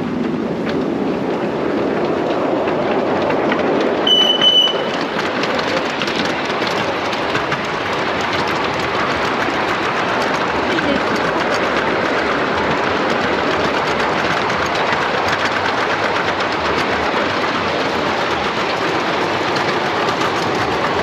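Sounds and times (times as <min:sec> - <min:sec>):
miniature steam train rattling: 0:00.0 - 0:21.0
steam train whistle: 0:04.0 - 0:05.0.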